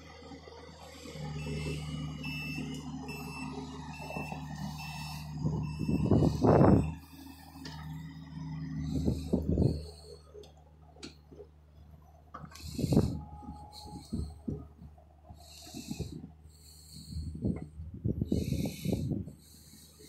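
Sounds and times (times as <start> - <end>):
excavator diesel engine running: 0.0 - 20.0
high reversing alarm beeps: 1.2 - 7.0.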